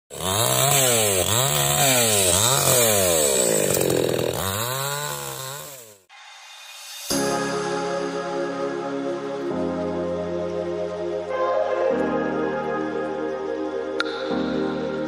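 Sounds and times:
chainsaw cutting branches: 0.1s - 7.2s.

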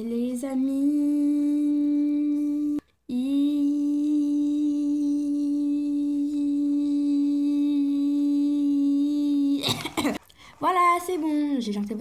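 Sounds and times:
woman singing long note: 0.0s - 9.6s.

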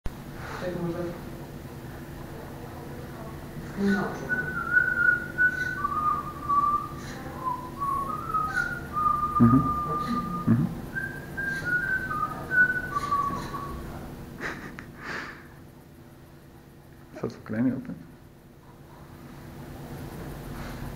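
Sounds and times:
whistled tune: 4.4s - 13.8s.

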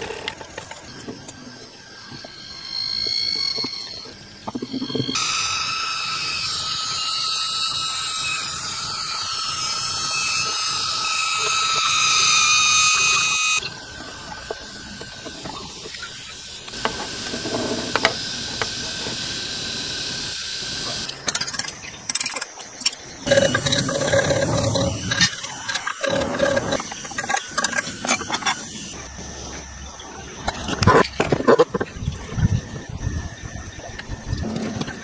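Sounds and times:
quieter steady whine: 0.0s - 35.0s
power tool motor whining: 23.2s - 29.2s.

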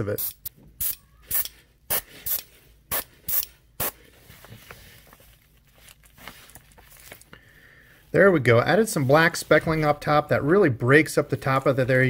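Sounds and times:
airbrush spraying bursts: 0.1s - 4.0s.

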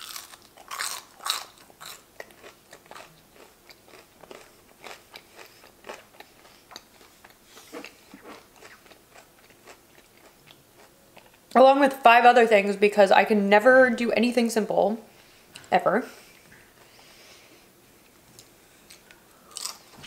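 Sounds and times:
crunching fried food: 0.0s - 11.4s, 18.8s - 20.0s
wet chewing: 0.0s - 11.4s.

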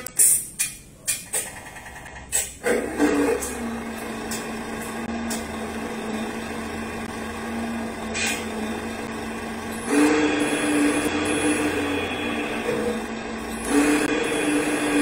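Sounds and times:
small electric motor whining: 5.0s - 15.0s.

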